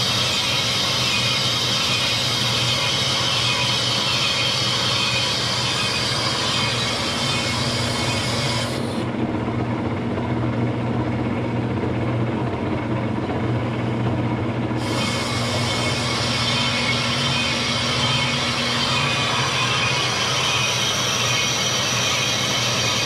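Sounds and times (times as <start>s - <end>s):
metal lathe humming: 0.0s - 9.2s, 13.8s - 23.0s.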